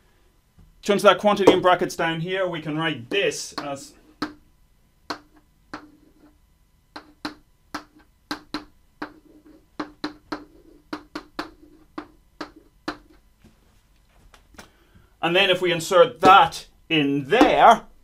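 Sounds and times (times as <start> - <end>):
chalk tapping on blackboard: 3.1 - 4.4, 5.1 - 13.2.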